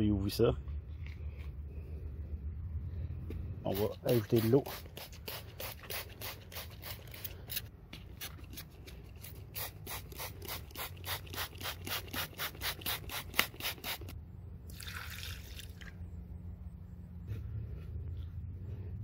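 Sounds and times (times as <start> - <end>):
spray bottle squirting: 3.7 - 14.2
water poured into a bucket: 14.7 - 16.0.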